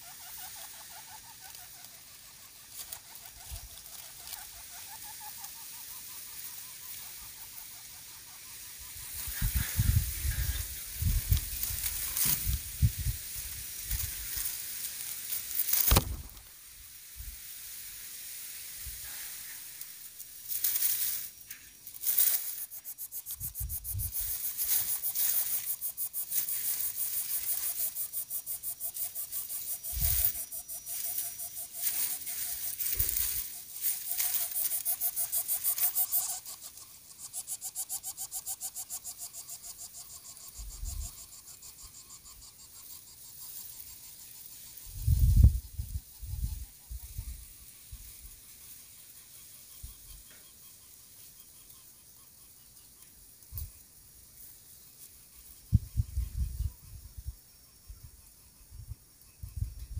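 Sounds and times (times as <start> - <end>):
chicks hissing breaths: 0.0 - 16.0, 16.7 - 51.6
knocks in dry grass: 9.2 - 16.6, 20.5 - 36.4.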